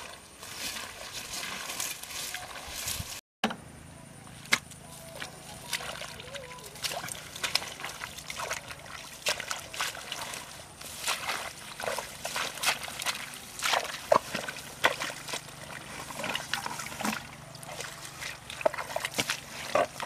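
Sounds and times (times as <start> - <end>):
hands squelching in wet mud: 0.0 - 3.2, 4.5 - 20.0
small splashes in muddy water: 0.0 - 3.2, 4.5 - 20.0.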